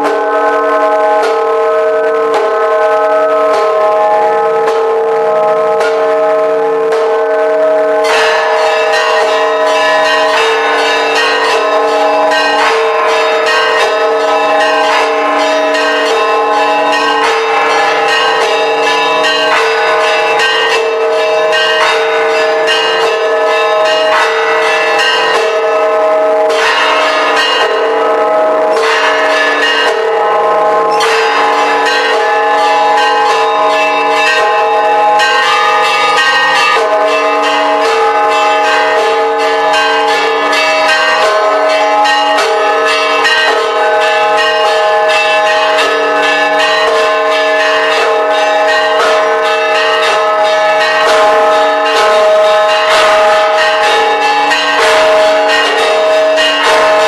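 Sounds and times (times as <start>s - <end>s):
church bells pealing: 0.0s - 57.0s.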